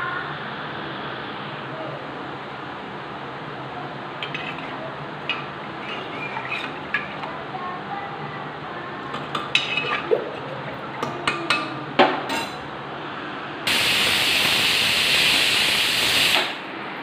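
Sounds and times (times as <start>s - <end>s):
utensils and lid clinking: 4.2s - 7.3s, 9.1s - 12.6s
pressure cooker whistle hissing: 13.7s - 16.6s.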